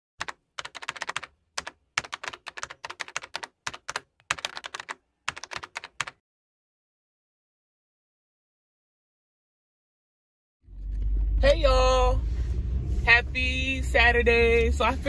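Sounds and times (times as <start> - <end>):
fast keyboard typing: 0.2 - 6.2.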